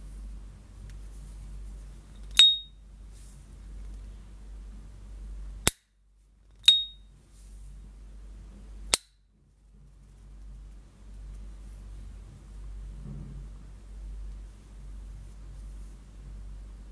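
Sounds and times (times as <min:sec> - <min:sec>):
lighter lid opening with ping: 0:02.3 - 0:02.7, 0:06.6 - 0:07.0.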